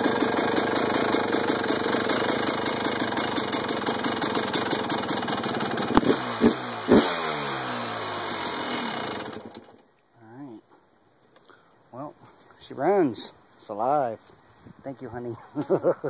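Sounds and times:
dirt bike engine idling: 0.0 - 9.8.

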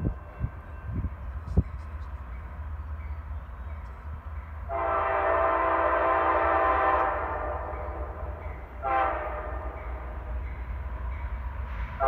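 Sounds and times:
locomotive air horn blast: 4.7 - 9.8.

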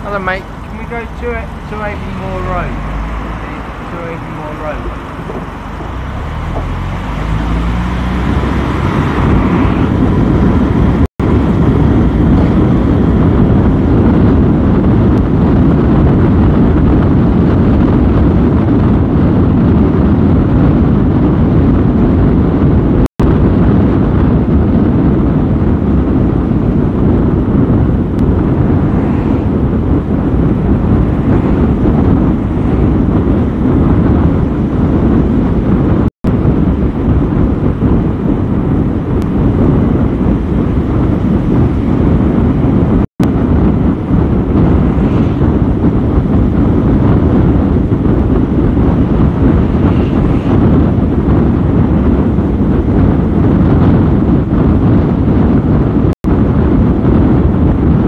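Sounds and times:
car driving rumble: 0.0 - 58.0.

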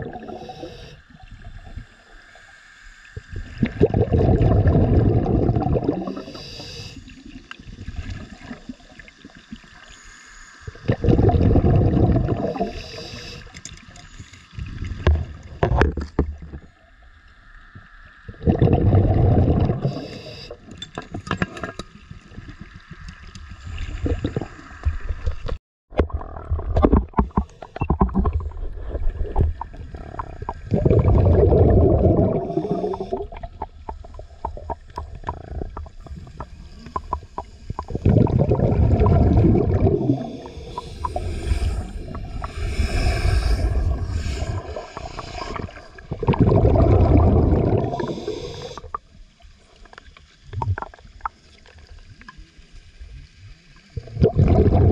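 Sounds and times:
underwater regulator bubbling: 0.0 - 1.0, 3.2 - 7.0, 10.7 - 13.8, 18.3 - 20.6, 23.2 - 49.0, 50.5 - 51.4, 54.0 - 54.9.

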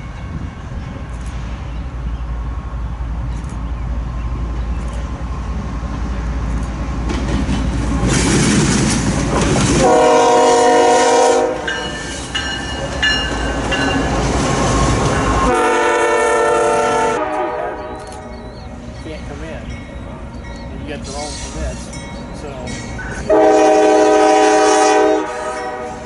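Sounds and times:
locomotive engine rumble: 0.0 - 26.0
train wheels on rails: 0.0 - 26.0
train air horn blast: 9.8 - 12.0, 15.4 - 18.5, 23.0 - 26.0.

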